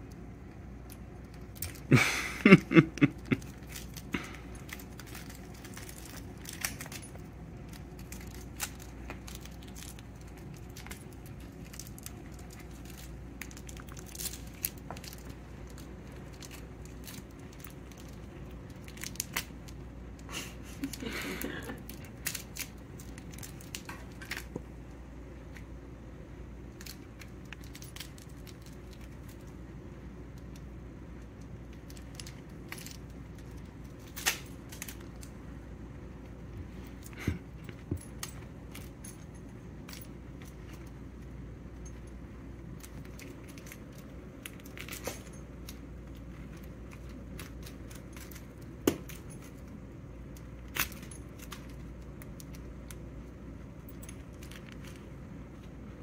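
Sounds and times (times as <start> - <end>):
cat playing with feather toy: 1.0 - 24.6, 36.3 - 56.0.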